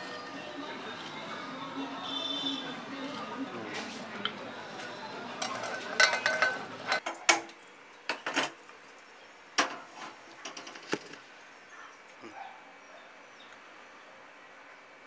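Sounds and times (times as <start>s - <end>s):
utensils clicking and clinking: 3.0s - 9.0s
iron pan knocking: 5.4s - 6.6s.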